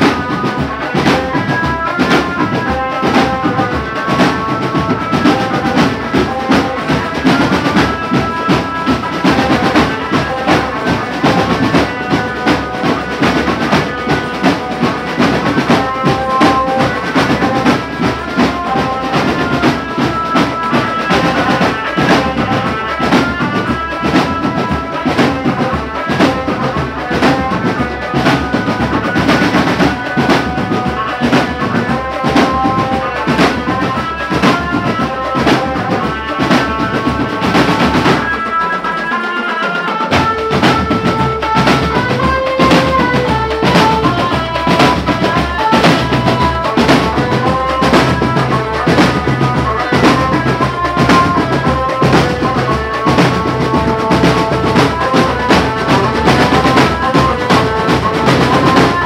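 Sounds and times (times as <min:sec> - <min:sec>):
snare and tenor drum rolls: 0:00.0 - 0:59.0
bass drums: 0:40.2 - 0:59.0.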